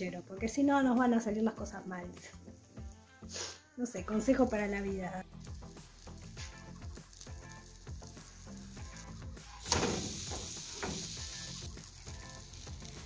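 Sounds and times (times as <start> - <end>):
soft background music: 0.0 - 13.0
pancake sizzling: 4.1 - 13.0
pancake landing in pan: 9.6 - 11.2.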